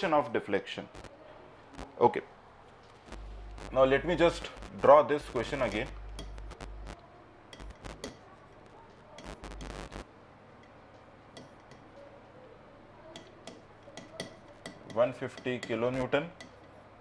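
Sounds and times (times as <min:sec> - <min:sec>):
chalk tapping and scraping on blackboard: 0:13.2 - 0:16.7.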